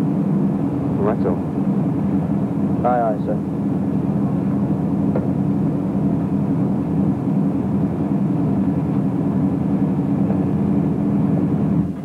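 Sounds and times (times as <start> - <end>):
boat engines droning: 0.0 - 12.0.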